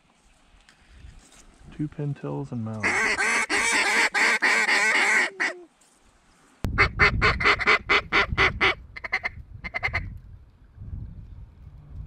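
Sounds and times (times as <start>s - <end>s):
duck calls: 2.8s - 5.6s, 6.8s - 10.1s.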